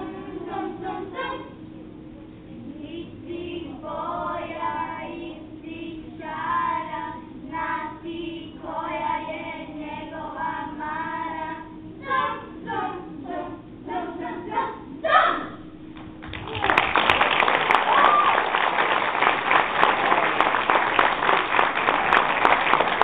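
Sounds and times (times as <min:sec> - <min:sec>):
children singing: 0:00.0 - 0:01.5, 0:06.2 - 0:15.5.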